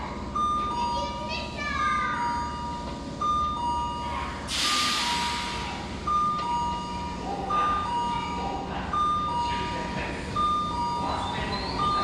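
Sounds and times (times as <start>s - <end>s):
loud hiss: 4.5s - 5.6s.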